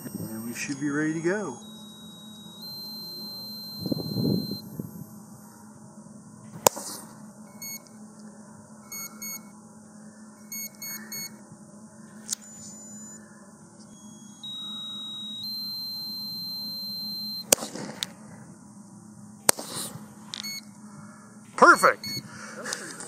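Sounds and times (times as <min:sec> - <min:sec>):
short high electronic beeps: 0:00.0 - 0:05.2, 0:07.5 - 0:07.8, 0:08.9 - 0:09.5, 0:10.4 - 0:11.4, 0:14.0 - 0:17.5, 0:21.6 - 0:22.2
sharp crack: 0:17.5 - 0:18.0.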